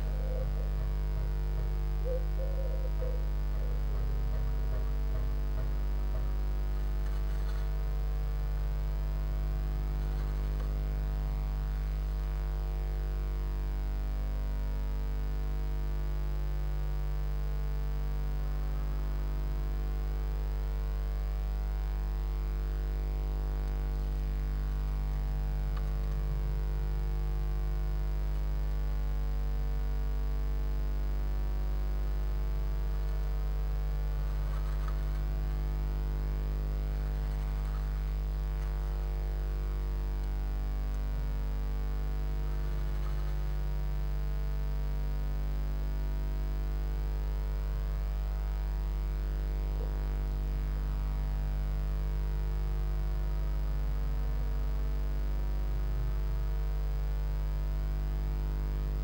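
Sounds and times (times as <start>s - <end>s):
low electrical hum: 0.0s - 59.0s
bird rustling in nest: 6.1s - 8.0s, 9.7s - 11.0s, 34.0s - 36.0s, 36.6s - 39.1s, 42.4s - 43.7s.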